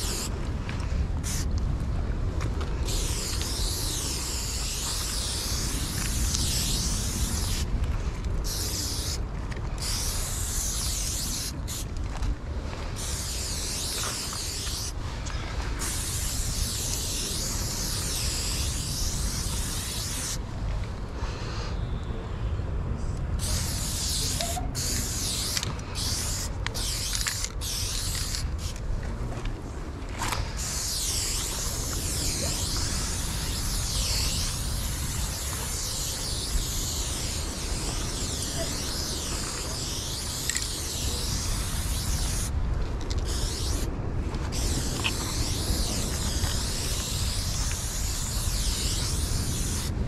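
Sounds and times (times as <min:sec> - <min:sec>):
spray paint can hissing: 0:00.0 - 0:00.3, 0:01.2 - 0:01.5, 0:02.8 - 0:07.7, 0:08.4 - 0:09.2, 0:09.8 - 0:11.9, 0:13.0 - 0:15.0, 0:15.8 - 0:20.4, 0:23.4 - 0:28.8, 0:30.6 - 0:43.9, 0:44.5 - 0:50.0.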